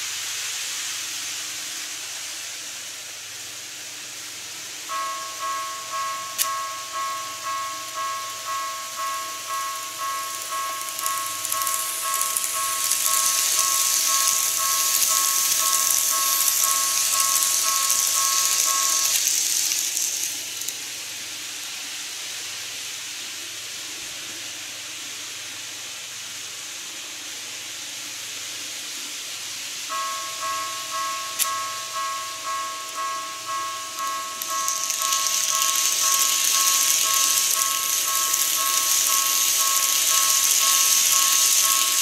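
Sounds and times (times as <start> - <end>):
model train rolling hiss: 0.0 - 42.0
level crossing bell clanging: 4.9 - 19.6, 29.9 - 42.0.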